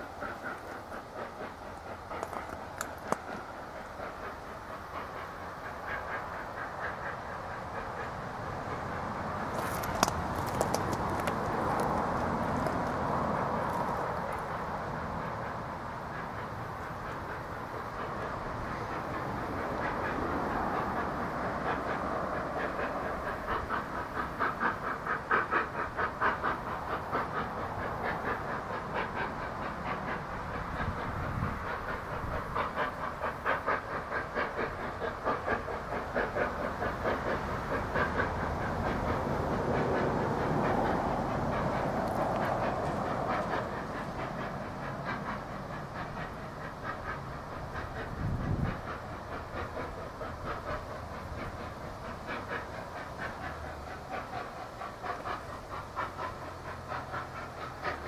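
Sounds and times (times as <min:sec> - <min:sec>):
steam locomotive chuffing: 0:00.0 - 0:58.0.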